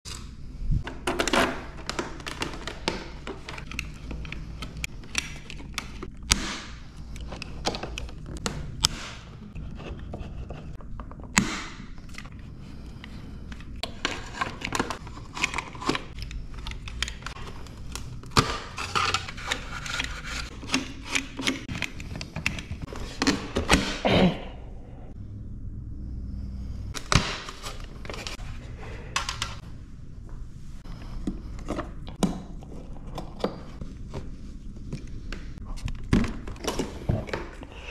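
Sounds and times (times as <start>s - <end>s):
low steady hum: 0.1s - 37.9s
plastic panels handled: 0.8s - 12.3s.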